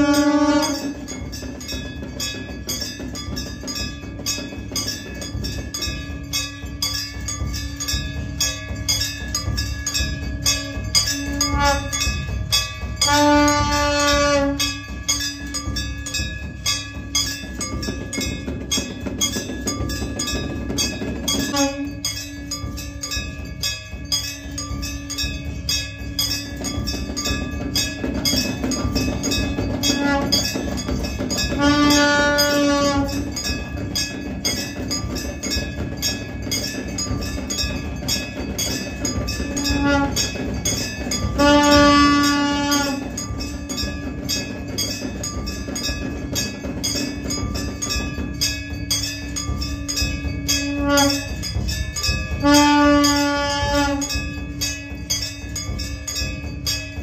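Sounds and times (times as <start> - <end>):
conch horn blast: 0.0 - 0.9, 11.3 - 12.0, 13.1 - 14.7, 41.4 - 43.0, 50.7 - 51.2, 52.4 - 54.1
drums beaten in fast rhythm: 0.0 - 57.0
ritual bells ringing: 0.0 - 57.0.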